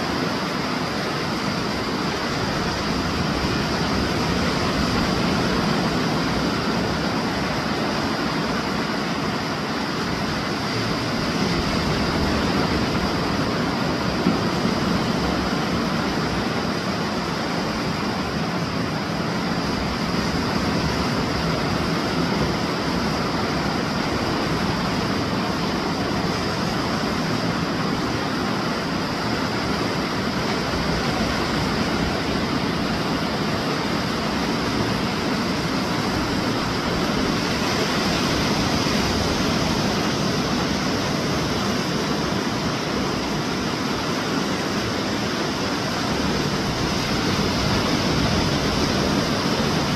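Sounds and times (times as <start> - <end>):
surf breaking on beach: 0.0 - 49.9.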